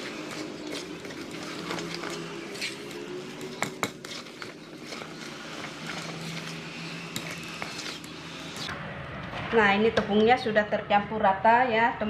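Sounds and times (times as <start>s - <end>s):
spatula scraping metal bowl: 0.0s - 8.7s.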